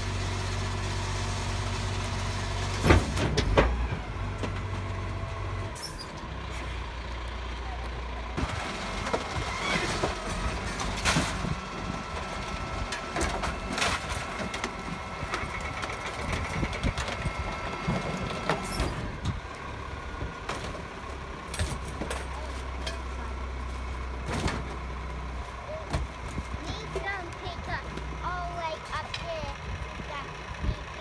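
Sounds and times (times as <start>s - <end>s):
garbage truck engine running: 0.0s - 31.0s
rubbish clanking into hopper: 2.6s - 4.9s, 8.4s - 19.4s, 24.0s - 25.0s.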